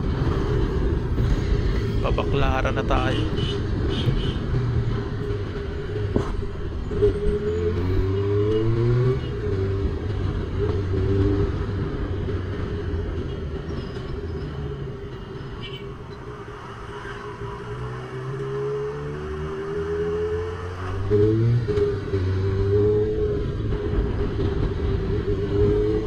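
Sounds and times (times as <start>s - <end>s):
motorcycle engine revving: 17.6s - 26.0s.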